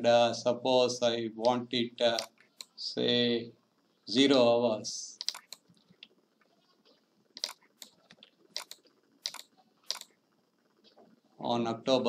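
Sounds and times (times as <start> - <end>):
keyboard and mouse clicking: 2.1 - 2.8, 5.2 - 6.1, 7.4 - 10.2.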